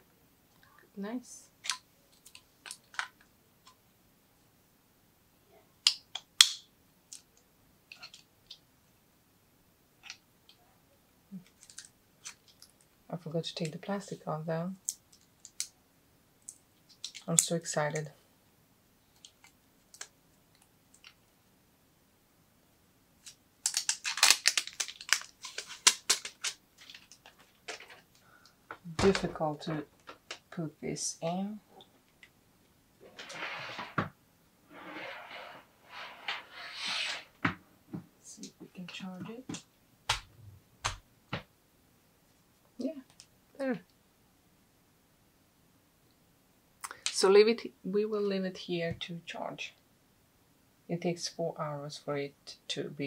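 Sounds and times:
cable crinkly rustling and clicking: 1.6 - 3.8, 7.1 - 8.6, 11.3 - 13.0, 14.8 - 15.8, 16.4 - 18.1, 19.1 - 21.4, 23.2 - 30.5, 42.3 - 43.3.

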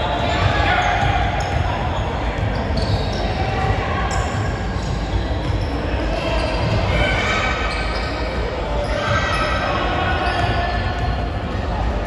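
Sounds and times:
indistinct voices in gym: 0.0 - 12.0
basketball bouncing on court: 0.2 - 5.7.

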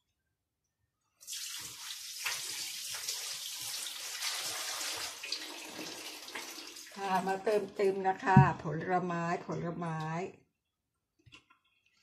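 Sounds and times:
water running from tap: 1.2 - 7.5.

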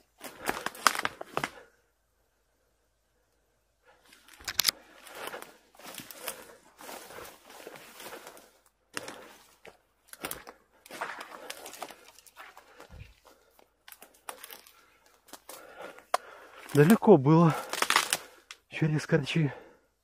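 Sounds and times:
twigs snapping: 0.2 - 1.6, 4.2 - 6.5, 8.0 - 18.6
footsteps crunching through dry leaves: 4.7 - 15.8.

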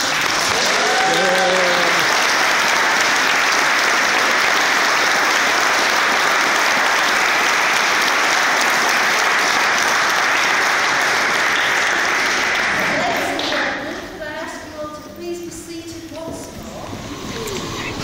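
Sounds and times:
crowd applauding: 0.0 - 14.0.

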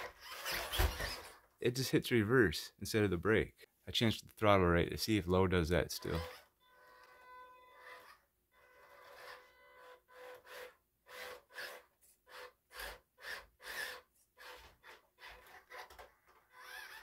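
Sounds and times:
small electric motor whine: 6.0 - 17.0.

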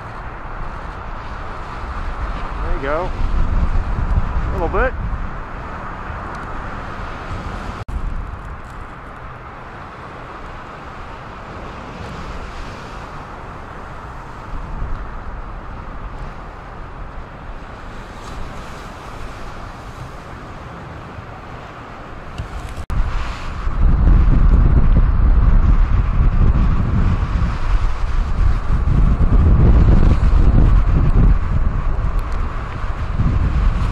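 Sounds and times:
wind buffeting microphone: 0.0 - 33.9
waves breaking on rocks: 6.8 - 24.6.

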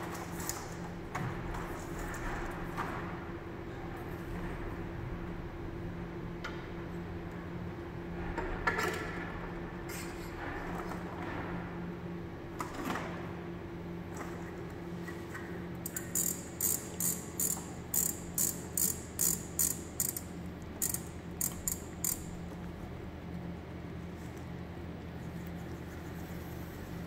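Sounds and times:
machine steady hum: 0.0 - 27.0
knob ratcheting clicks: 15.9 - 22.3.

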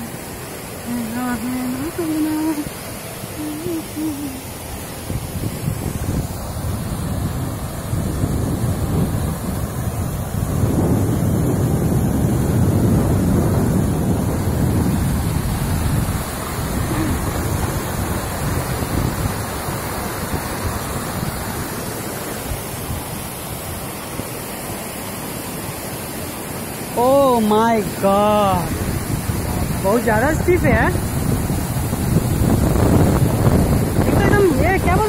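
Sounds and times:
waterfall rushing over rocks: 0.0 - 35.0
wind buffeting microphone: 3.4 - 24.0, 27.6 - 35.0.

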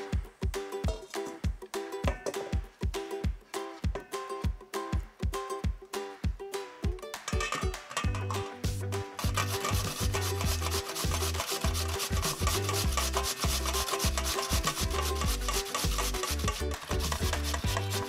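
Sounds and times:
background music: 0.0 - 18.0
potato rasping on metal grater: 9.2 - 18.0.

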